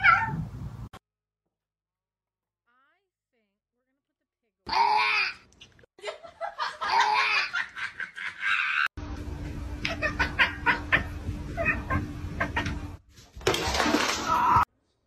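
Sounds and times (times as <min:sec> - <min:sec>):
person laughing: 0:06.0 - 0:08.9, 0:09.8 - 0:12.8
steady low hum: 0:09.0 - 0:13.0.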